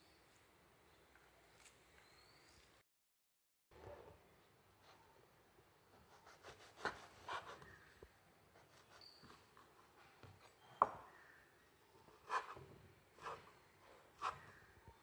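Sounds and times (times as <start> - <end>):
knife cutting bread crust: 6.1 - 7.8.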